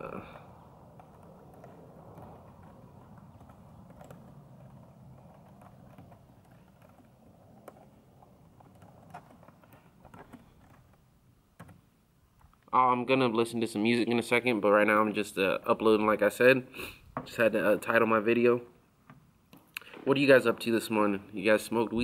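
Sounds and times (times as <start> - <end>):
faint background hum: 0.0 - 22.0
typing on a keyboard: 0.9 - 11.0.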